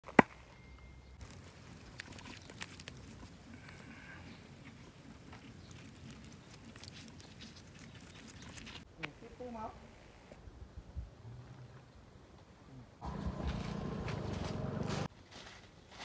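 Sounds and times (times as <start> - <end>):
meat crackling on grill: 1.2 - 8.9.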